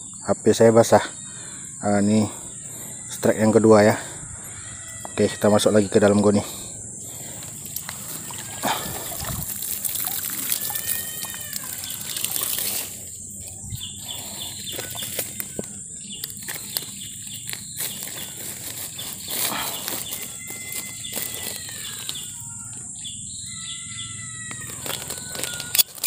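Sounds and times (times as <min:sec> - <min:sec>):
hands rustling through grass: 0:07.2 - 0:22.5
plastic sack handled: 0:07.2 - 0:22.6, 0:24.5 - 0:26.0
short clicks and crackles: 0:24.6 - 0:26.0.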